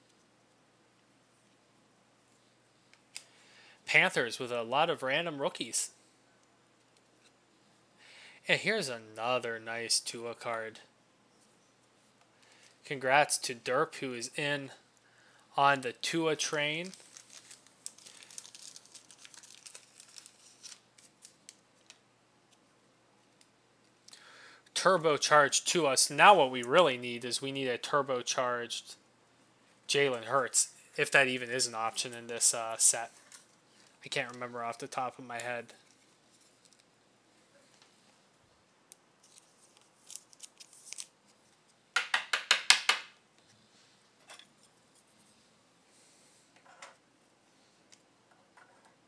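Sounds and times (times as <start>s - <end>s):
plastic sleeve crinkling: 16.4s - 22.0s, 39.2s - 41.7s.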